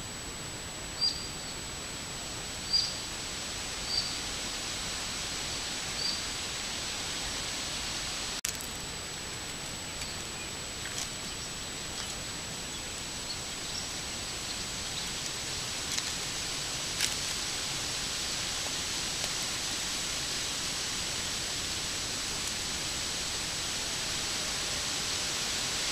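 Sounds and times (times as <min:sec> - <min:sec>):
high-pitched whine: 0:00.0 - 0:25.9
microphone hiss: 0:00.0 - 0:25.9.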